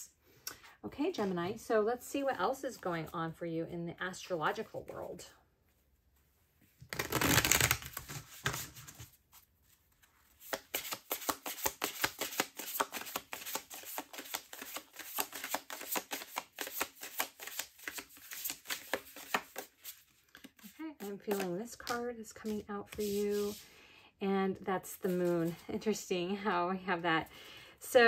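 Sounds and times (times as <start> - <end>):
cards slapping during shuffle: 6.9 - 9.1, 10.0 - 23.6
cards rustling: 6.9 - 23.6.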